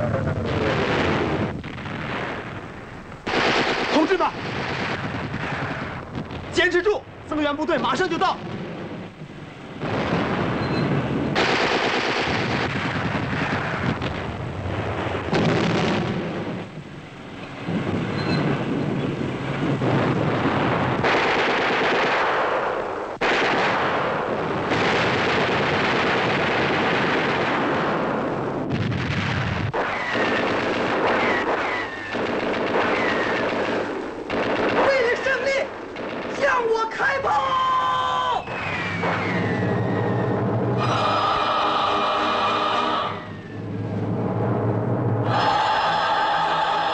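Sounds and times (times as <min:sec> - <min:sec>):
machine-gun fire: 0:03.2 - 0:06.4, 0:09.8 - 0:14.3, 0:20.7 - 0:28.2, 0:28.8 - 0:36.8, 0:38.5 - 0:40.2.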